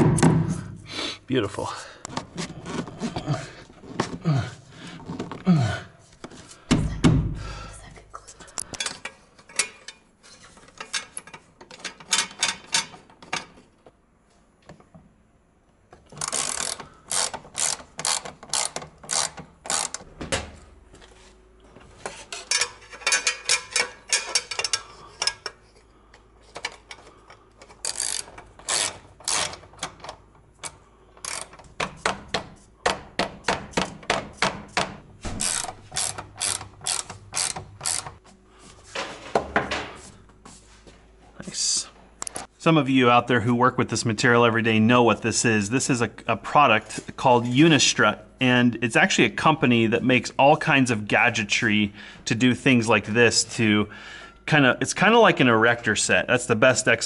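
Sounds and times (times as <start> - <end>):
ratchet wrench clicking: 16.2 - 20.0, 27.8 - 29.6, 30.6 - 31.6, 35.4 - 38.2.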